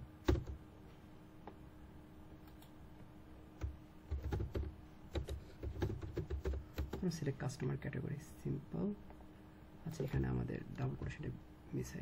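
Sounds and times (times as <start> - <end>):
faint steady hum: 0.0 - 12.0
computer keyboard typing: 0.2 - 0.6, 3.6 - 7.1.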